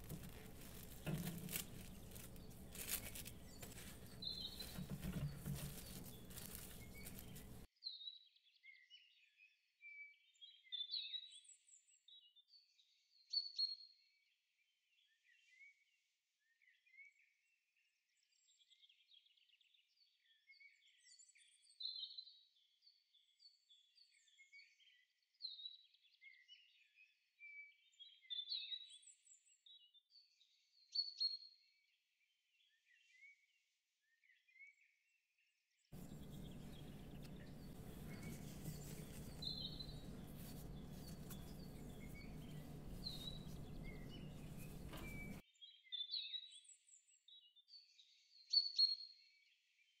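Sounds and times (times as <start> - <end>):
songbirds chirping: 0.0 - 7.7, 36.0 - 45.4
low hum with hiss: 36.0 - 45.4.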